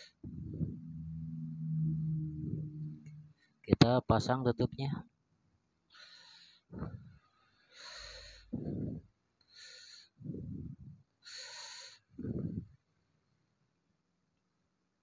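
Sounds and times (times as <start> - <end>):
person breathing: 0.0 - 0.8, 5.9 - 12.8.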